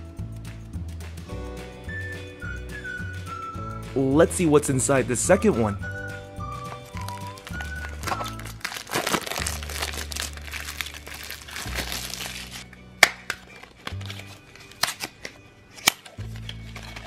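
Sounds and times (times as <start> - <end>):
background music: 0.0 - 17.0
plastic shrink-wrap crinkling: 6.7 - 12.8, 13.4 - 15.3, 16.0 - 17.0.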